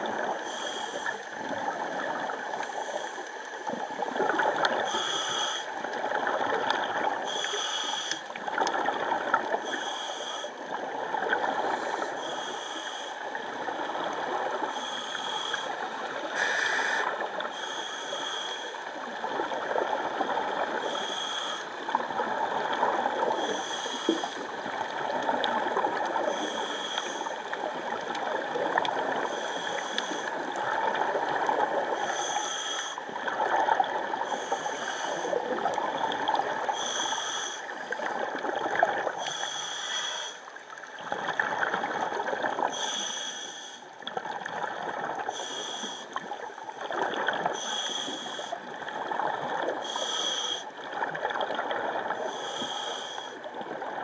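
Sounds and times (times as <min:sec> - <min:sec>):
gurgling exhaust bubbles underwater: 0:00.0 - 0:54.0
regulator hiss: 0:16.4 - 0:18.7.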